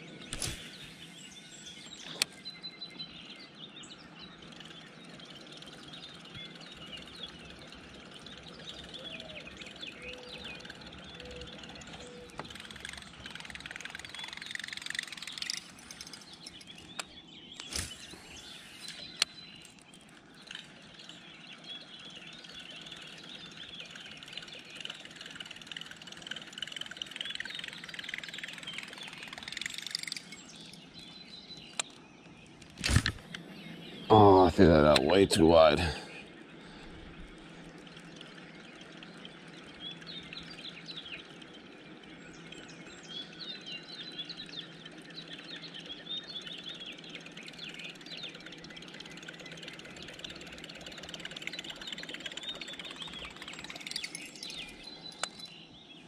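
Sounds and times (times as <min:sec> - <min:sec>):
birds chirping: 0:00.0 - 0:56.0
sharp click: 0:00.3 - 0:00.8, 0:32.6 - 0:33.4.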